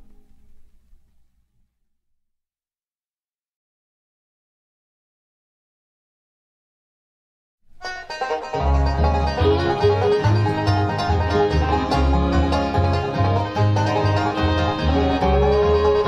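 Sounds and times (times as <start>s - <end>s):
banjo: 7.7s - 16.0s
acoustic guitar picking: 7.8s - 16.0s
upright bass: 7.8s - 16.0s.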